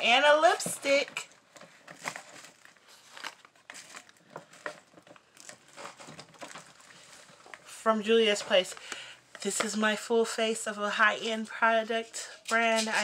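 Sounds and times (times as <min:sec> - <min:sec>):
packaging rustling and crinkling: 0:00.2 - 0:09.8.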